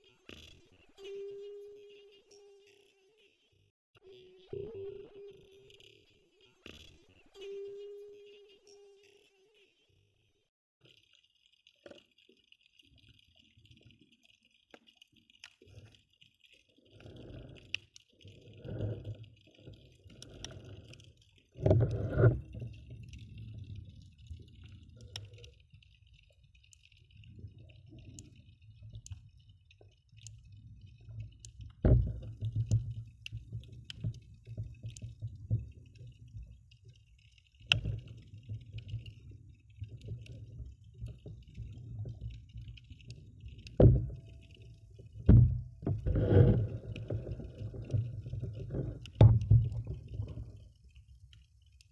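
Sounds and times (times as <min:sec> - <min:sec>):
faint clicks: 0:10.8 - 0:51.9
underwater water sloshing: 0:11.6 - 0:51.9.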